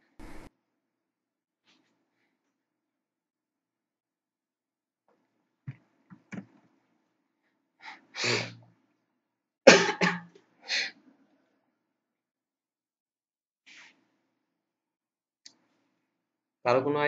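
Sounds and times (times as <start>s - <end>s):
person coughing: 9.7s - 10.3s.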